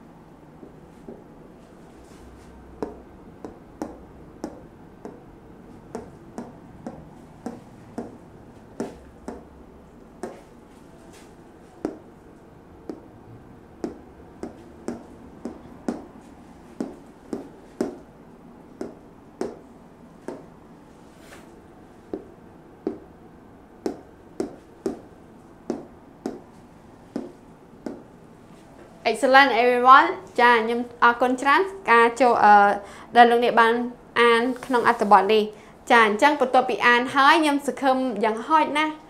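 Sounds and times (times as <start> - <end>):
faint room hum: 0.0 - 39.0
marker tapping on whiteboard: 0.6 - 1.3, 2.8 - 5.3, 5.9 - 8.2, 8.8 - 9.5, 10.2 - 10.5, 11.8 - 12.1, 12.9 - 13.1, 13.8 - 18.0, 18.8 - 20.5, 22.1 - 23.1, 23.8 - 25.1, 25.7 - 28.1.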